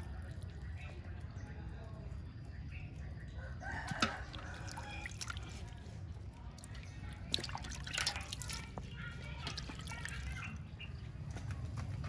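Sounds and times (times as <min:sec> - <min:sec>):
water dripping and pouring in a pot: 0:00.0 - 0:10.8
rooster crowing: 0:03.4 - 0:05.1.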